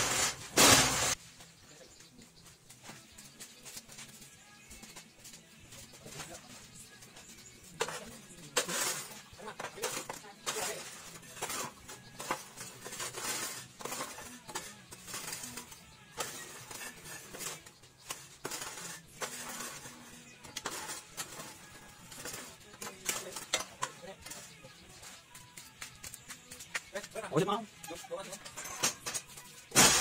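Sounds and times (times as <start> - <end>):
metal clinks and scrapes: 6.1 - 26.7, 27.8 - 30.0.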